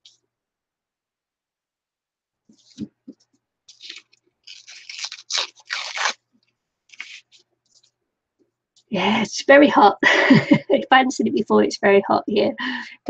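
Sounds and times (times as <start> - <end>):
paper rustling and tearing: 3.7 - 6.2, 6.9 - 7.9.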